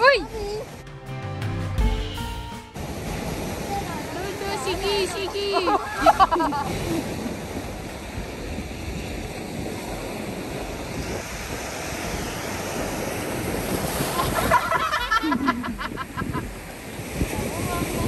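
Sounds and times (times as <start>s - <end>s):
waves washing over rocks: 2.8s - 18.0s
wind on microphone: 2.8s - 18.0s
person's voice: 3.8s - 5.9s.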